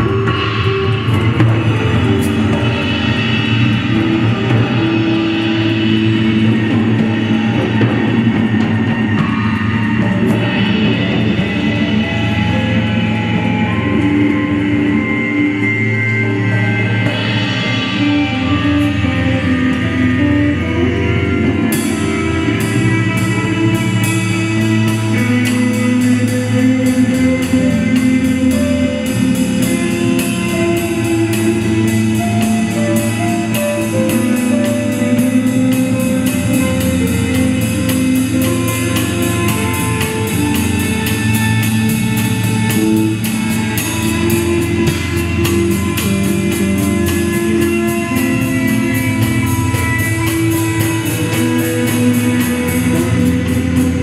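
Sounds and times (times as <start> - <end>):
electric bass notes: 0.0 - 54.0
electric guitar notes: 0.0 - 54.0
drums with sharp ticks: 21.5 - 54.0.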